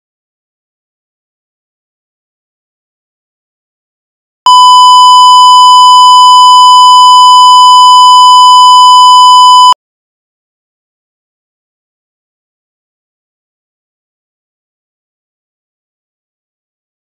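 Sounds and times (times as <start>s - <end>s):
electronic test tone: 4.5s - 9.8s.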